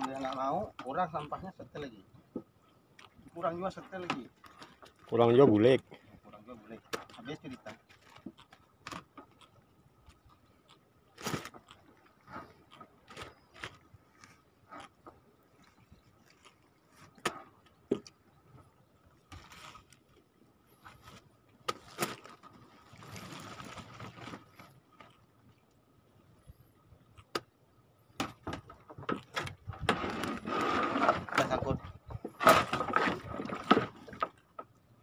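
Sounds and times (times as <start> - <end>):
net and rope knocking and scraping: 2.3 - 5.8, 6.6 - 10.3, 11.1 - 18.2, 19.2 - 20.2, 20.8 - 25.1, 28.2 - 34.8.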